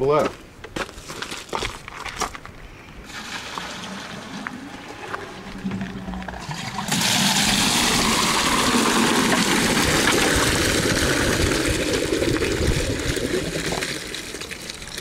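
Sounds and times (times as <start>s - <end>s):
liquid pouring into plastic bucket: 3.1s - 15.0s.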